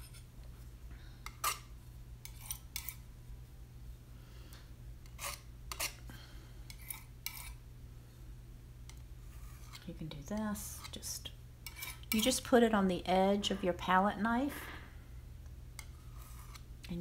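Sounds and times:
palette knife scraping and tapping: 1.2 - 3.0, 5.0 - 6.0, 6.7 - 7.6, 8.9 - 9.9, 11.6 - 12.4, 15.8 - 17.0.

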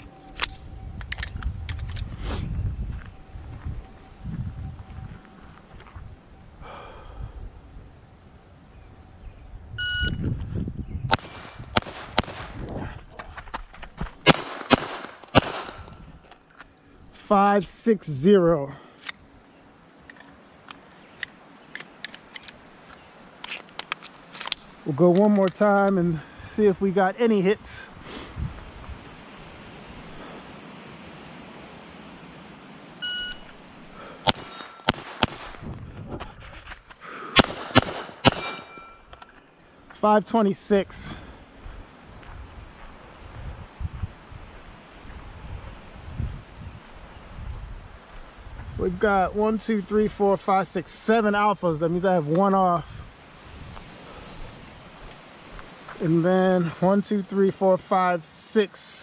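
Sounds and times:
shot timer beep: 9.8 - 10.2, 33.0 - 33.5
steel target ringing: 11.1 - 11.7, 14.7 - 16.0, 34.3 - 35.3, 37.8 - 39.2
pistol shots: 11.1 - 12.6, 14.2 - 15.9, 34.2 - 35.6, 37.4 - 39.0
scuffing movement: 12.9 - 14.2.

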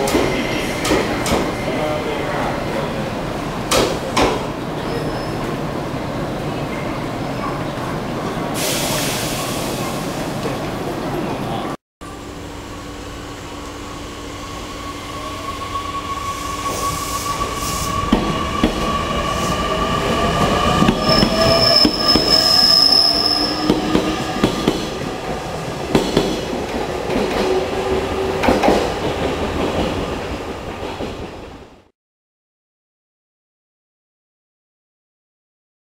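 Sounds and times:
rail-joint clicks: 0.0 - 1.5
high wheel squeal: 14.2 - 25.0.

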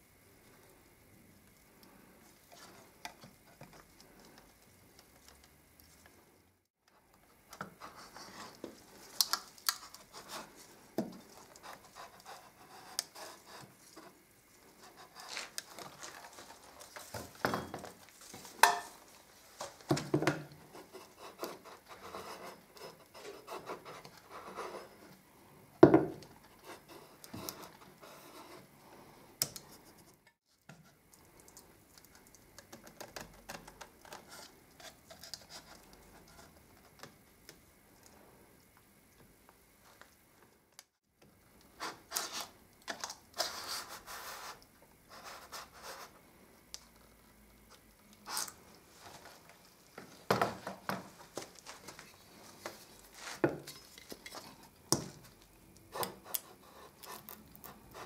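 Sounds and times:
tools knocking on workbench: 25.8 - 26.2.

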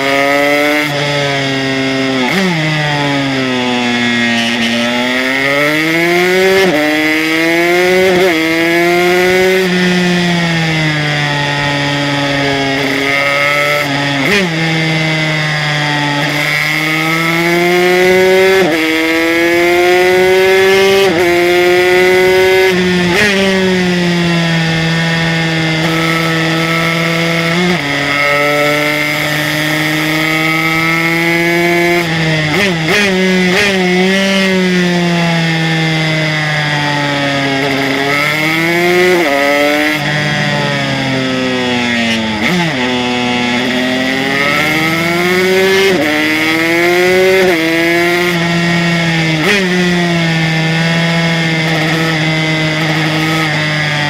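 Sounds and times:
two-stroke engine at high revs: 0.0 - 54.0.

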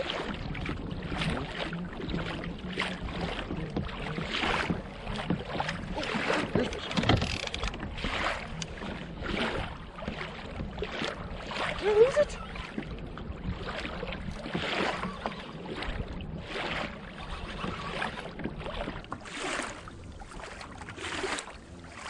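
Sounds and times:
water sloshing around kayak: 0.0 - 22.0.

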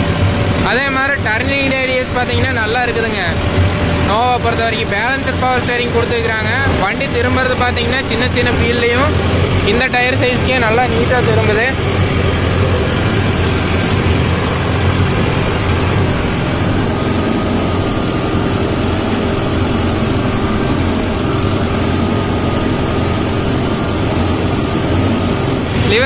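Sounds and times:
tractor diesel engine under load: 0.0 - 26.0.

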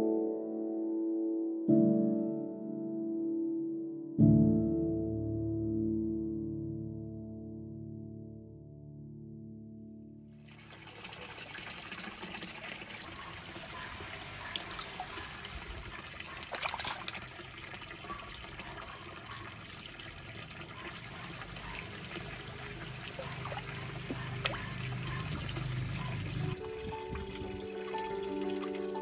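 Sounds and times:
water pouring into pond: 10.4 - 29.0.

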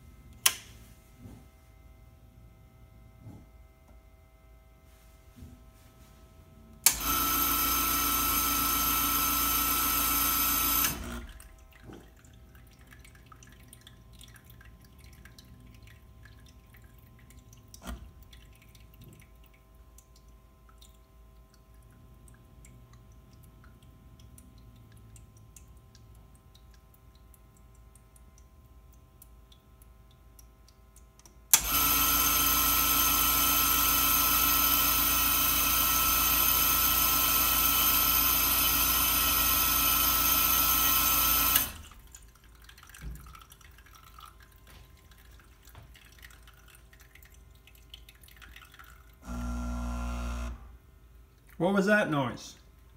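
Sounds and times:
click: 0.4 - 0.7
espresso machine pump humming: 6.8 - 12.0, 31.5 - 42.0, 49.2 - 50.8.

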